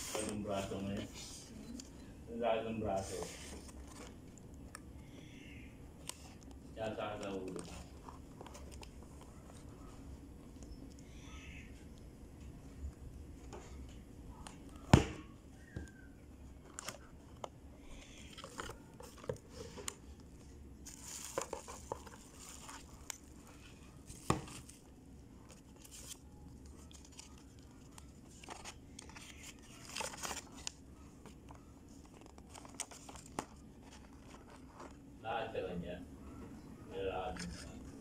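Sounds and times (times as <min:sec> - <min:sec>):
bubble wrap crinkling: 0:20.2 - 0:35.1
paper unfolding: 0:25.4 - 0:30.8.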